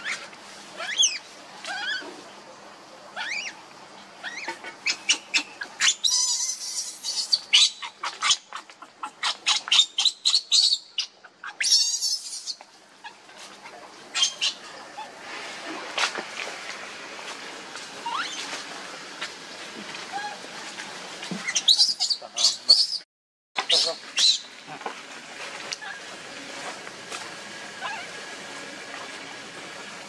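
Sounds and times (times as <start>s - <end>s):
baby macaque screaming: 0.8s - 2.1s, 3.2s - 3.6s, 4.2s - 13.2s, 14.1s - 15.1s, 18.0s - 18.4s, 21.4s - 23.0s, 23.7s - 24.5s, 27.8s - 28.1s
baby macaque squealing and crying: 0.8s - 2.1s, 3.2s - 3.6s, 4.2s - 13.2s, 14.1s - 15.1s, 18.0s - 18.5s, 21.4s - 23.0s, 23.7s - 24.5s, 27.8s - 28.1s.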